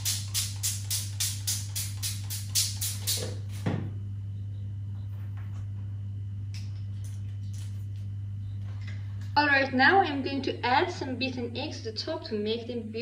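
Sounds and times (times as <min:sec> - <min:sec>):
background music with shaker beat: 0:00.0 - 0:03.4
steady low hum: 0:00.0 - 0:13.0.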